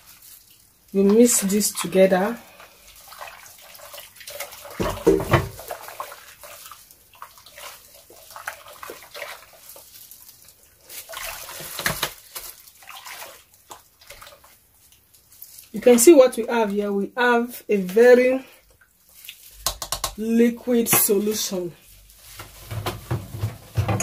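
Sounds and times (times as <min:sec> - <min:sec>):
liquid sloshing and splashing: 0:00.0 - 0:16.7, 0:17.9 - 0:19.6
spatula stirring liquid: 0:00.0 - 0:16.8.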